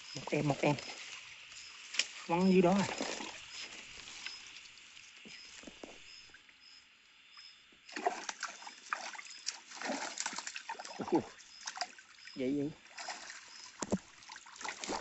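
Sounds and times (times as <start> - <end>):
faint high chirp: 5.2 - 7.7, 10.9 - 12.8
water splashing and pouring: 8.0 - 12.2, 12.8 - 15.0.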